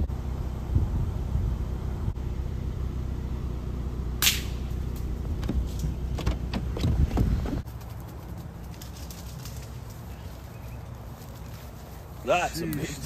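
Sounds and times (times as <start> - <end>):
low background rumble: 0.0 - 12.3
air rifle shot: 4.2 - 4.7.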